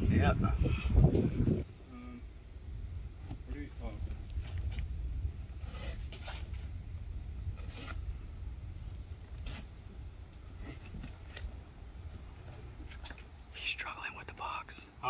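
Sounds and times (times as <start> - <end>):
steady low rumble: 0.0 - 15.0
cardboard and tape ripping: 5.6 - 6.7, 7.6 - 8.0, 9.3 - 9.7.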